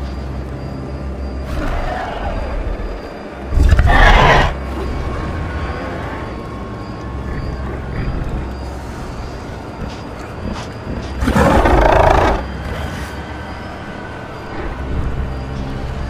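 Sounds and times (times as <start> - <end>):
dinosaur roar: 3.5 - 4.6, 11.2 - 13.2.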